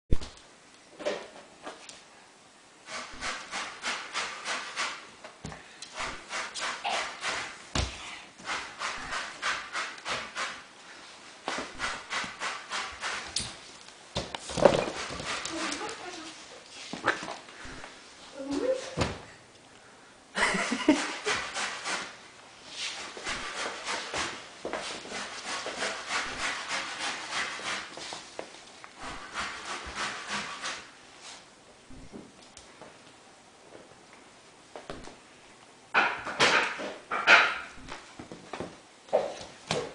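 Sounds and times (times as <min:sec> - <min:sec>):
puppy rough scraping sounds: 0:02.8 - 0:05.1, 0:05.9 - 0:07.6, 0:08.4 - 0:10.7, 0:11.4 - 0:13.4, 0:14.4 - 0:18.0, 0:20.9 - 0:28.3, 0:29.0 - 0:32.2.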